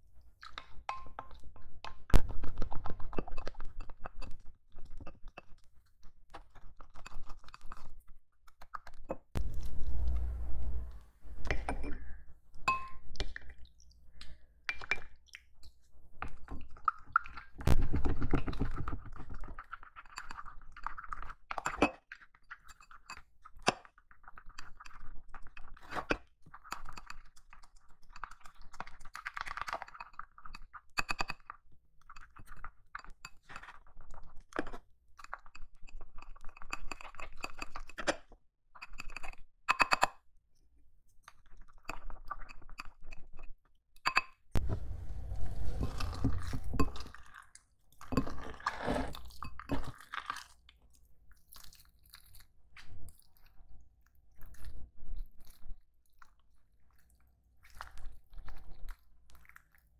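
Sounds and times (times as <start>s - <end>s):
spoon clinking against glass bowl: 12.7s - 13.0s
wet crunchy scraping: 44.6s - 47.2s.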